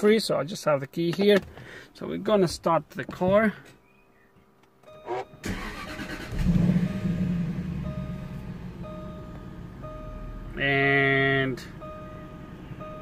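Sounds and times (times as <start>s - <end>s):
warning chime: 4.9s - 5.9s, 6.7s - 13.0s
car engine starting and idling: 4.9s - 13.0s.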